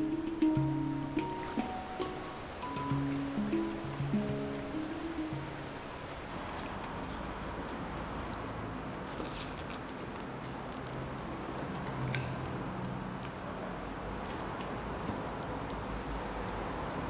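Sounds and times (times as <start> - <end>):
steady low hiss: 0.0 - 6.5.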